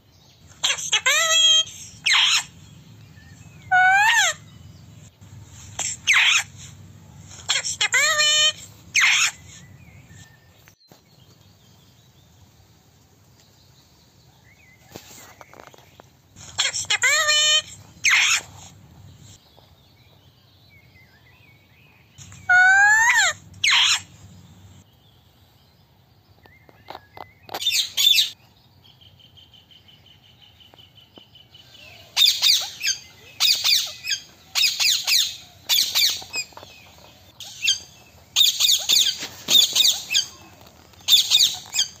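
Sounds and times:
parakeets screeching: 0.5s - 10.2s, 16.4s - 19.4s, 22.2s - 24.8s, 32.1s - 42.0s.

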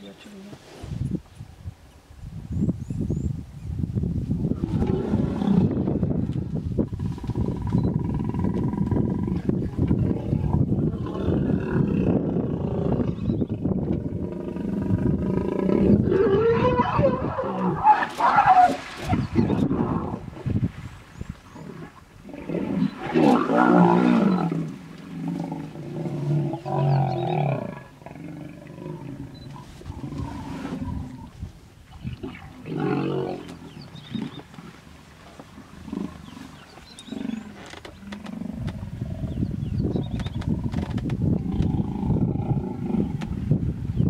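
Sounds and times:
hippos roaring and bellowing: 4.5s - 6.3s, 6.9s - 20.4s, 21.5s - 31.4s, 32.0s - 34.8s, 41.4s - 43.4s
water splashing: 17.8s - 26.4s.

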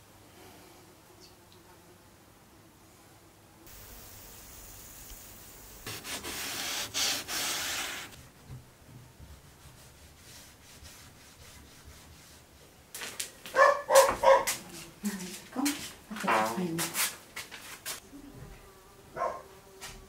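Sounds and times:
cloth rubbing on window: 5.8s - 8.2s
dog yelping: 13.6s - 14.5s.

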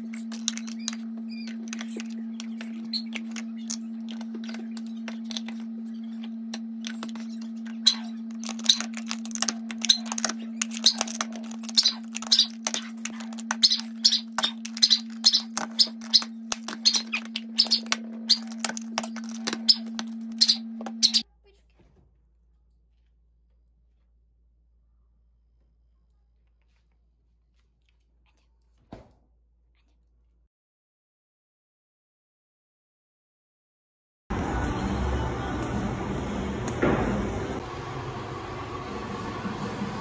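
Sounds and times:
steady low hum: 0.0s - 21.5s, 34.3s - 40.0s.

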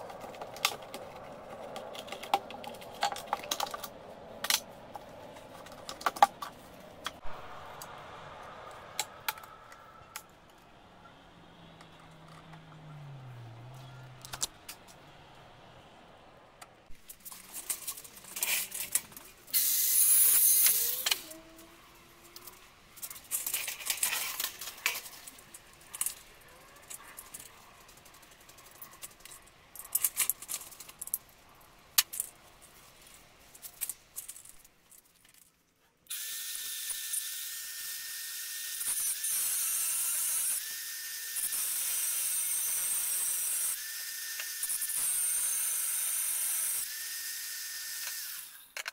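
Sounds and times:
angle grinder cutting metal: 36.1s - 48.8s.

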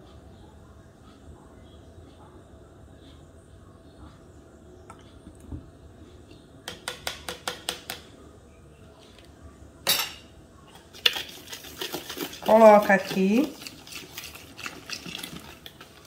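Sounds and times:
cutlery clinking on a counter: 9.8s - 10.3s
spoons clattering onto a plate: 9.9s - 10.2s.

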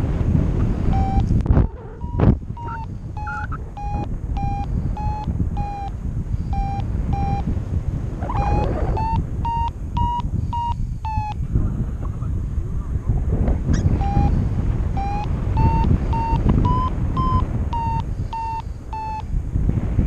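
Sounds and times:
wind rushing over microphone: 0.0s - 20.0s
variometer beeping: 0.8s - 7.6s, 8.2s - 11.4s, 13.8s - 19.4s.

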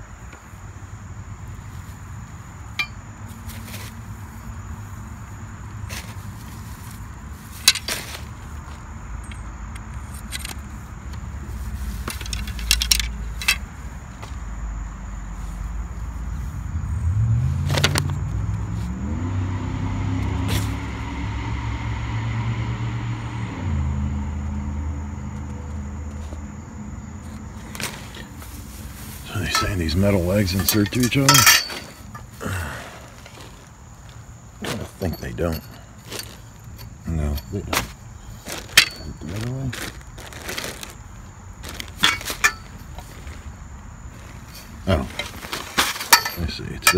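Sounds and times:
metal poles clicking and clinking: 2.7s - 3.8s, 7.5s - 8.2s, 12.0s - 13.7s, 29.2s - 32.3s, 34.6s - 40.8s, 41.7s - 43.2s, 44.4s - 46.9s
vehicle engine running: 2.7s - 46.9s.

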